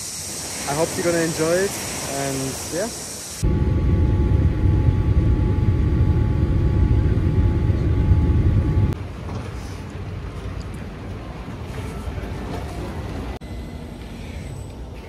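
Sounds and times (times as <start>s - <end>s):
faint steady whine: 3.2s - 9.0s, 13.4s - 15.0s
airliner cabin engine rumble: 3.4s - 9.0s.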